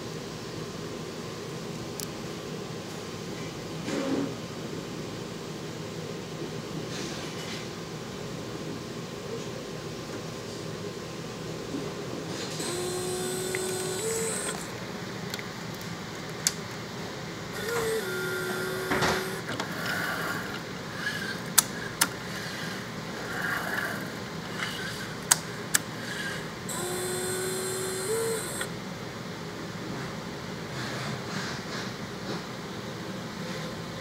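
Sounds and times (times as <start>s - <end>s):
fan humming: 10.9s - 29.7s
robot motor whine: 12.6s - 14.7s, 17.5s - 21.3s, 26.7s - 28.7s
sharp mechanical clicks: 12.6s - 14.8s, 17.6s - 19.6s, 26.7s - 28.7s.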